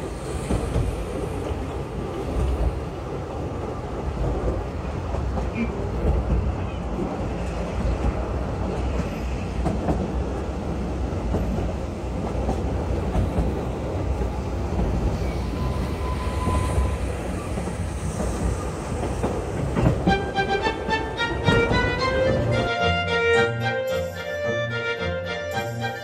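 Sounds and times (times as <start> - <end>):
train rumbling on track: 0.0 - 24.6.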